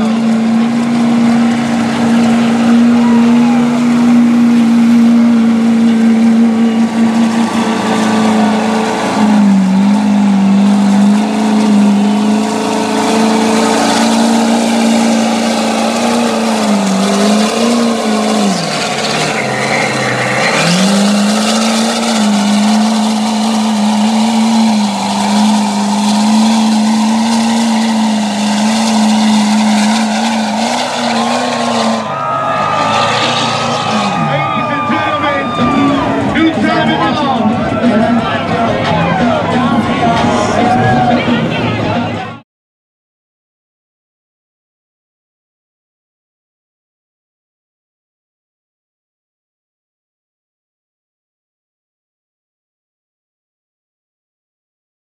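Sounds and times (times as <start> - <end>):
mud and water spraying: 0.0 - 32.0
truck engine at high revs: 0.0 - 42.4.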